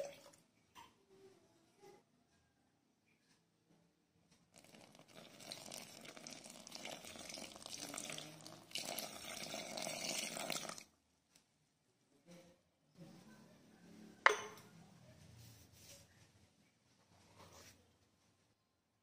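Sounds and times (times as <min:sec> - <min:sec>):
water pouring into flour: 0:04.5 - 0:10.9.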